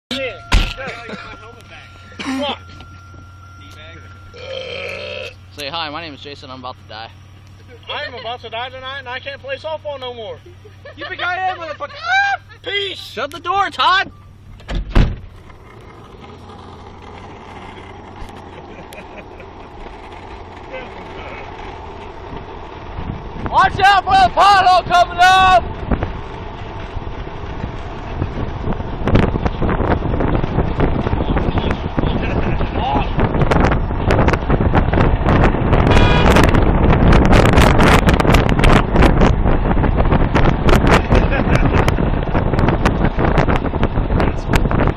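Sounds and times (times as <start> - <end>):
car engine and road noise: 0.0 - 44.9
brief high-pitched tone: 0.1 - 5.6
car door shutting: 0.5 - 0.9, 14.0 - 15.6
wind buffeting microphone: 14.4 - 44.9.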